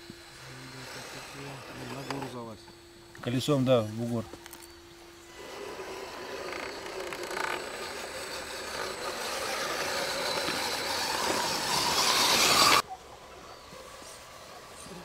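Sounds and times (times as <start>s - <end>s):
toy car electric motor whining: 0.0s - 2.7s, 4.1s - 12.8s.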